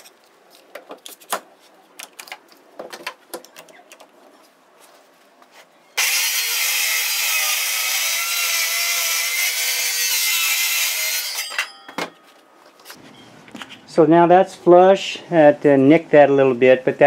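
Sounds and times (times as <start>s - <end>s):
circular saw cutting wood: 6.0s - 11.7s.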